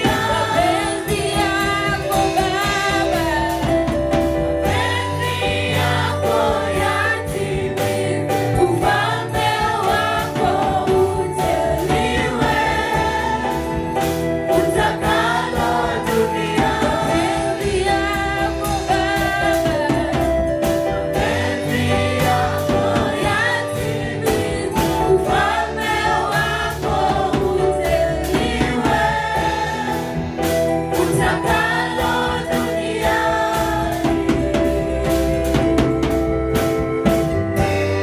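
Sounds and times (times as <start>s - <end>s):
woman leading the singing: 0.0s - 30.3s
gospel choir singing: 0.0s - 38.0s
steady drum beat: 0.0s - 38.0s.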